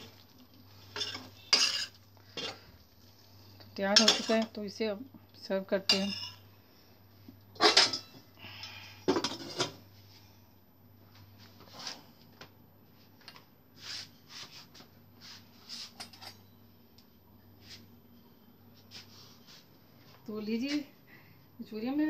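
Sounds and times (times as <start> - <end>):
utensils clanking on pan and bowl: 0.9 - 2.6, 3.9 - 4.6, 5.8 - 6.4, 7.6 - 8.2.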